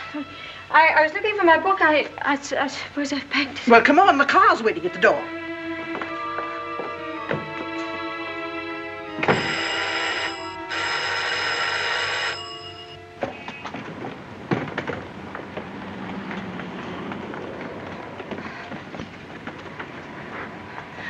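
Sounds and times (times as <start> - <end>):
electric telephone bell ringing: 9.2 - 13.2.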